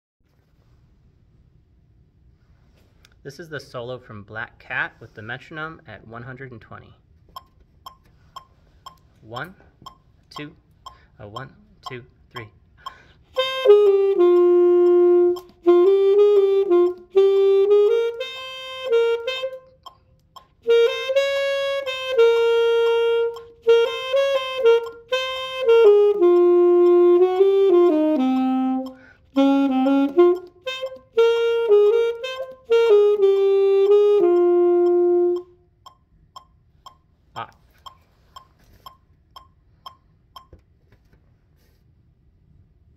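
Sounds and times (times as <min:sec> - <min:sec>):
player breathing: 0:12.8 - 0:13.2
solo saxophone: 0:13.2 - 0:20.0, 0:20.6 - 0:35.6.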